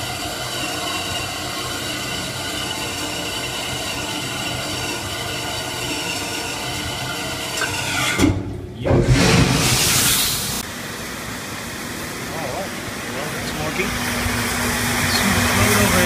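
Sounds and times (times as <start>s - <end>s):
water churning into tank: 0.0s - 10.6s
machine humming: 0.0s - 16.0s
loud hiss: 9.1s - 10.6s.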